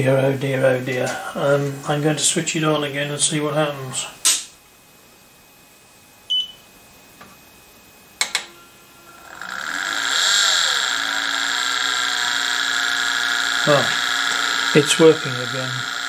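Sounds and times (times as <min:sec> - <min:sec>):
electric motor whine: 0:07.2 - 0:16.0.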